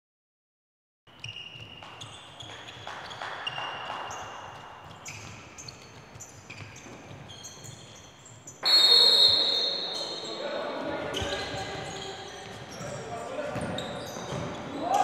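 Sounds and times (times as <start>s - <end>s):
shoes squeaking on court: 1.1s - 15.0s
low murmur of hall: 1.5s - 15.0s
loud shrill high tone: 8.6s - 10.3s.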